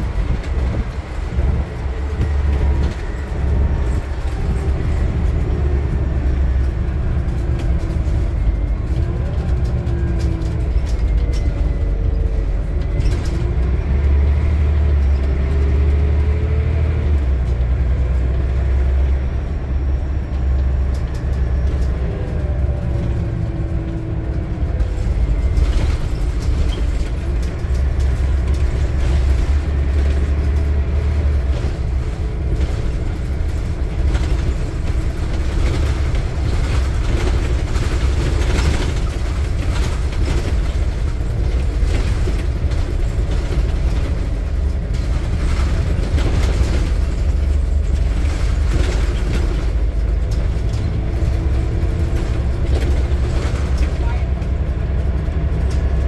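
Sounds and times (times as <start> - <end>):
bus engine drone: 0.0 - 56.0
road noise: 0.0 - 56.0
body knocks and rattles: 20.6 - 56.0.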